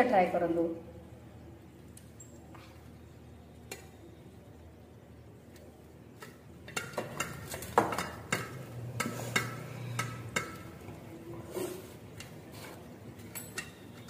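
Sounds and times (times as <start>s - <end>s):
clinks against metal plates: 13.2s - 14.0s.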